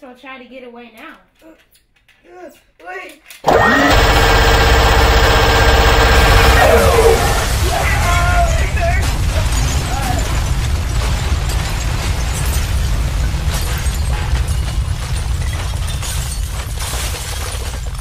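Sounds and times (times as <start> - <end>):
falling debris cracks: 3.8 - 18.0
explosion rumble: 5.8 - 16.6.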